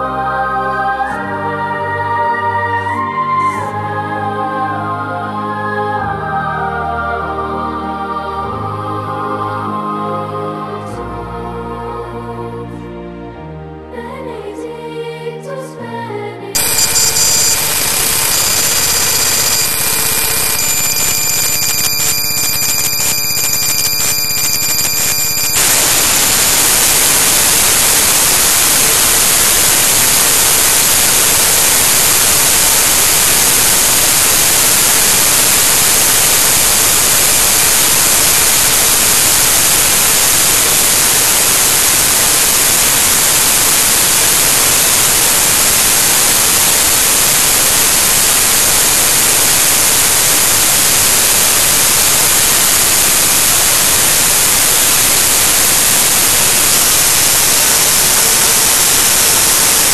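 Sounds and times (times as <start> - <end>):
loud static hiss: 16.6 - 59.9.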